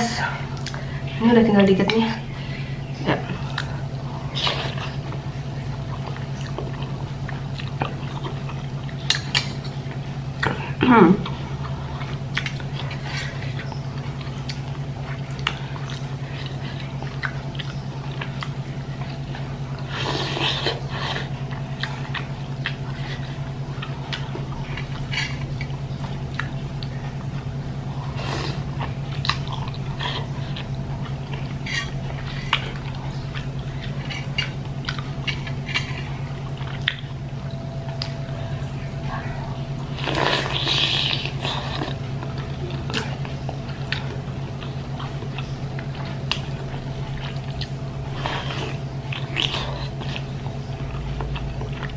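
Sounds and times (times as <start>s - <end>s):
low hum: 0.0s - 51.9s
chewing food: 1.9s - 51.9s.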